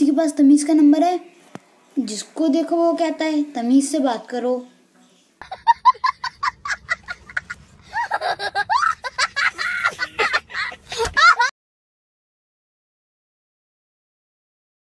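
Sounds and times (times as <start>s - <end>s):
young child laughing: 5.4s - 11.5s.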